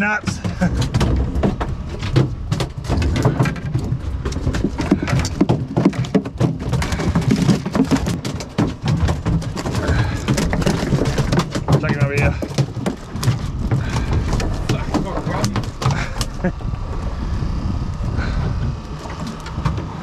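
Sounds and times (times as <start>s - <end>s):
fish slapping against boat hull: 0.0s - 16.5s.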